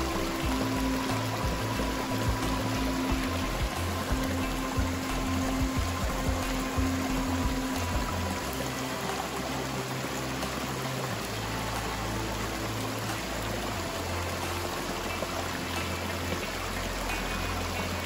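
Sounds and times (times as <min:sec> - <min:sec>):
music of low held notes: 0:00.0 - 0:18.0
river water flowing over rocks: 0:00.0 - 0:18.0.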